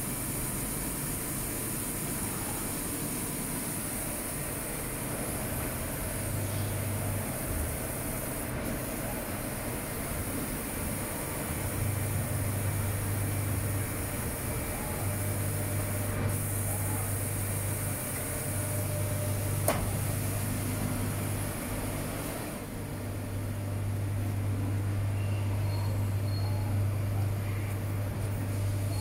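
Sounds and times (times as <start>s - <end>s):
coolant spray hissing: 0.0s - 18.7s.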